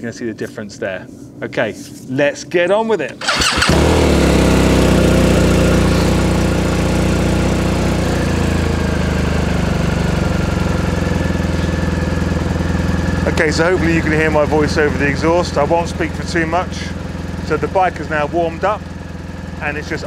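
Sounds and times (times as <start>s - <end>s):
motorcycle engine starting and idling: 3.0s - 20.0s.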